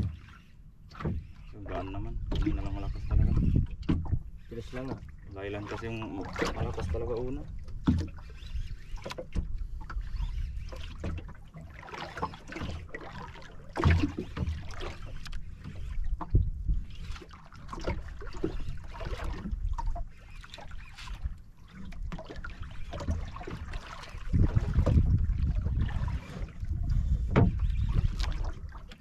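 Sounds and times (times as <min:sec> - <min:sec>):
water sloshing against boat hull: 0:00.0 - 0:29.0
wind on microphone: 0:01.5 - 0:05.0, 0:15.6 - 0:20.0, 0:22.9 - 0:28.8.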